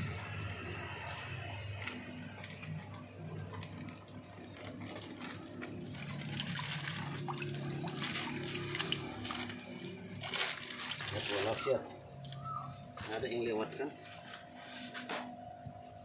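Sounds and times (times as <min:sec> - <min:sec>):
water splashing and trickling: 0:00.0 - 0:12.5.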